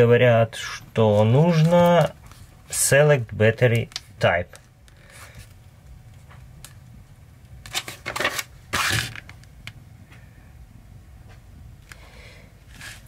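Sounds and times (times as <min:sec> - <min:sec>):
page being turned: 0:01.1 - 0:02.5, 0:07.7 - 0:09.3
paper pages rustling: 0:01.1 - 0:02.5, 0:07.6 - 0:09.3.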